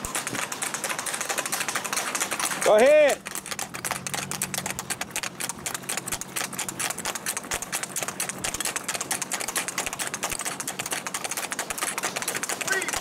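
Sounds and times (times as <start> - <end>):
hoofbeats on asphalt: 0.0 - 13.0.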